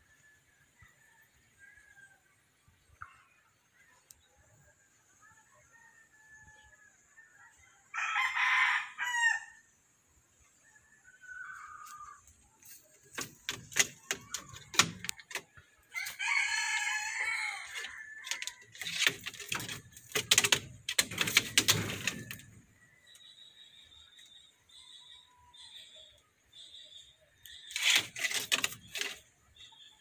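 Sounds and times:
rooster crowing: 0:07.5 - 0:09.6, 0:15.9 - 0:19.0
sharp knocks and rattling clatter: 0:12.6 - 0:15.8, 0:17.6 - 0:22.8, 0:27.7 - 0:29.3.

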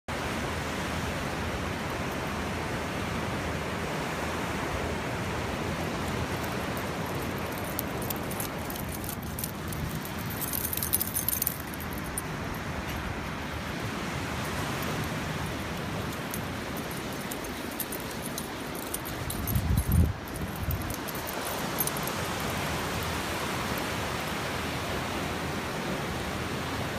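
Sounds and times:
ocean surf: 0:00.1 - 0:26.9
wind: 0:00.1 - 0:26.9.

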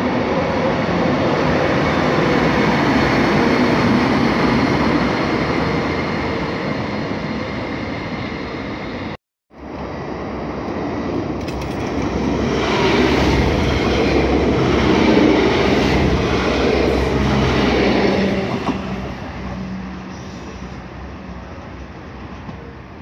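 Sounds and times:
electric train passing: 0:00.0 - 0:23.0
quieter train approaching: 0:00.0 - 0:23.0.

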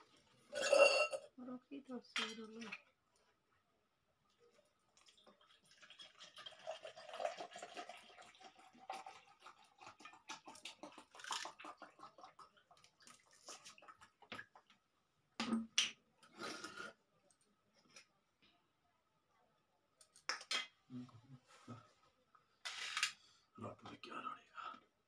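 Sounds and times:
liquid pouring into steel tumbler: 0:04.5 - 0:14.0.

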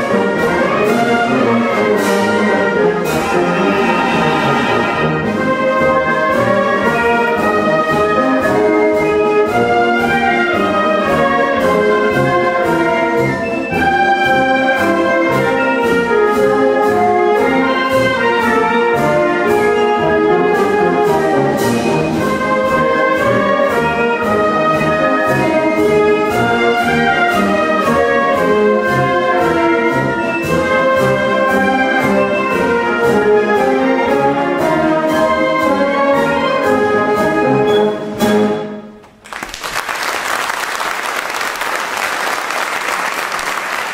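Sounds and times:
wind band playing a march: 0:00.0 - 0:39.0
audience applauding: 0:03.2 - 0:05.4, 0:39.0 - 0:43.9.

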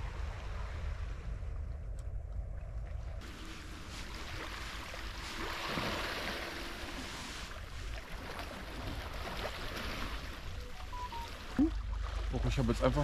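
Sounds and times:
low wind rumble on microphone: 0:00.0 - 0:06.0
sea water washing against rocks: 0:03.2 - 0:11.5.

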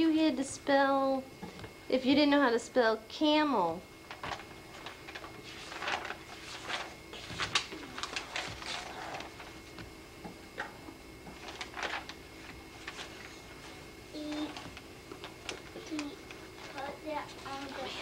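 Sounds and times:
notebook pages turning: 0:04.1 - 0:09.9, 0:11.3 - 0:13.4.

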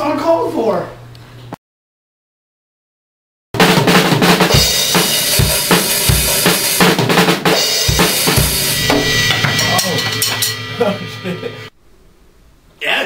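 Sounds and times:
kick drum beats: 0:03.6 - 0:09.1
snare drum strikes: 0:03.6 - 0:10.6
drum kit played hard: 0:03.6 - 0:11.8
crashing cymbals: 0:04.5 - 0:11.8.

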